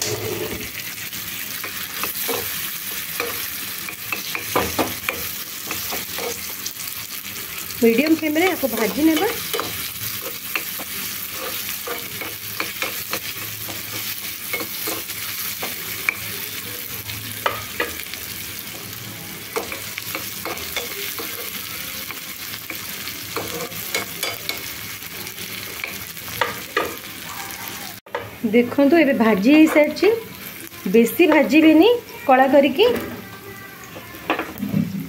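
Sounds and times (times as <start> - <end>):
steel spoon scraping a pan: 0.0 - 0.9, 1.6 - 6.6, 8.4 - 16.3, 22.7 - 24.8
vegetables sizzling in hot oil: 0.0 - 35.0.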